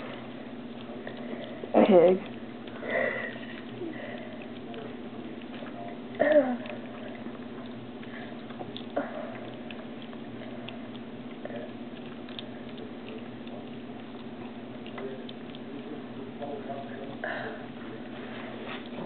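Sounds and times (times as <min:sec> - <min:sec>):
piglet chewing and slurping: 0:00.0 - 0:19.0
steady low hum: 0:00.0 - 0:19.0.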